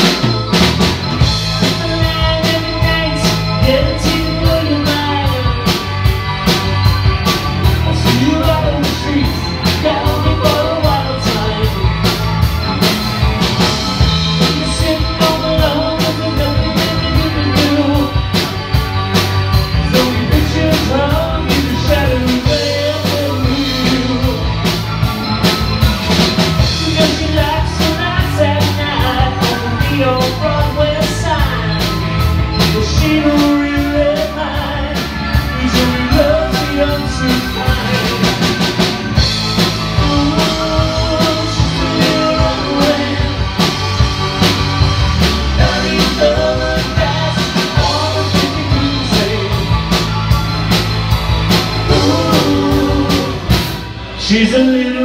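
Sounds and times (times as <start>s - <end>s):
drum kit beat: 0.0s - 55.0s
electric guitars: 0.0s - 55.0s
person singing: 1.5s - 5.9s, 7.5s - 12.2s, 14.4s - 18.5s, 19.7s - 24.8s, 26.6s - 32.0s, 32.6s - 38.6s, 39.9s - 43.8s, 45.5s - 50.1s, 51.8s - 55.0s.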